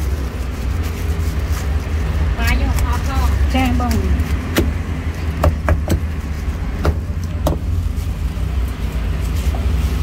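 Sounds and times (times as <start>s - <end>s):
vehicle engines rumbling: 0.0s - 10.0s
cleaver chopping meat: 3.9s - 6.1s.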